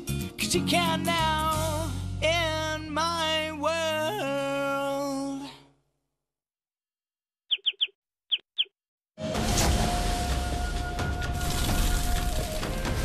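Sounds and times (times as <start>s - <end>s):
song with backing music: 0.0s - 4.4s
high bird-like chirps: 7.5s - 8.8s.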